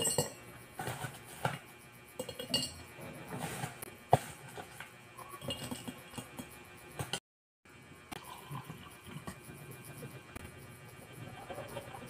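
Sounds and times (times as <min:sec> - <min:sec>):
ice clinking in glass: 0:00.0 - 0:00.4, 0:02.2 - 0:02.8.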